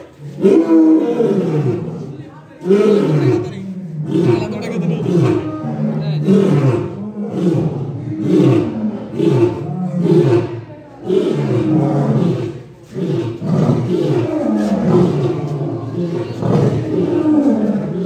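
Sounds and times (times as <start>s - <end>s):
lion roaring: 0.0s - 18.0s.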